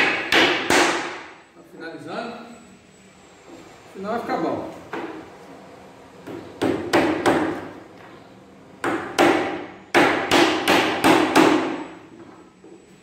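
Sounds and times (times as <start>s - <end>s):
hammer nailing wood: 0.0s - 1.3s, 6.3s - 7.7s, 8.8s - 11.9s.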